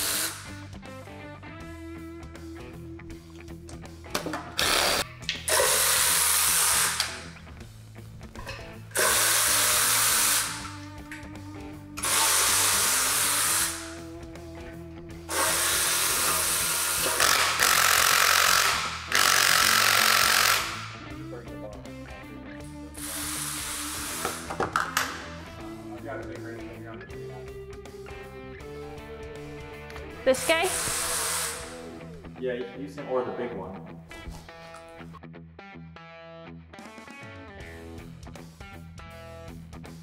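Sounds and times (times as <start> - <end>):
cordless power tool spinning bolts: 0.0 - 0.4, 12.0 - 13.8, 15.3 - 20.9
background music: 0.0 - 40.0.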